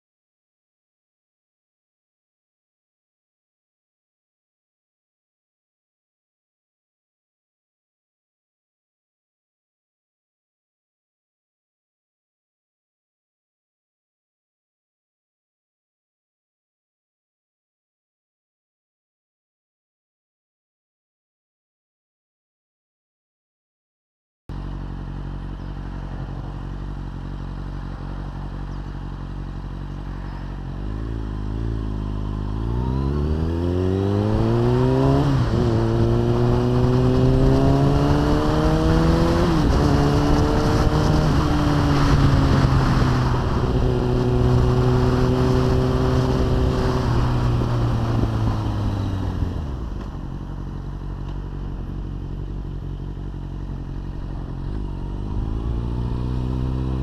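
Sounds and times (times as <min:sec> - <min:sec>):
motorcycle engine accelerating: 0:24.5 - 0:57.0.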